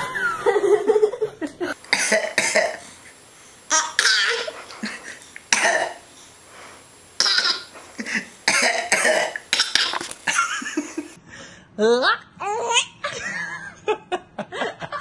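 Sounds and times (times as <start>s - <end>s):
laughter: 0.0s - 1.8s, 10.3s - 11.2s, 13.0s - 15.0s
baby coughing: 1.9s - 2.8s, 3.7s - 4.6s, 5.5s - 6.0s, 7.2s - 7.7s, 8.5s - 10.1s
man coughing: 5.5s - 6.0s, 7.2s - 10.0s.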